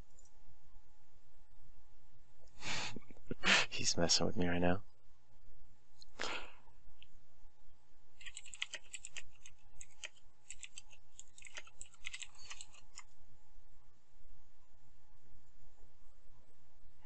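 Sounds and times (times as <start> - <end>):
computer keyboard typing: 8.2 - 13.0.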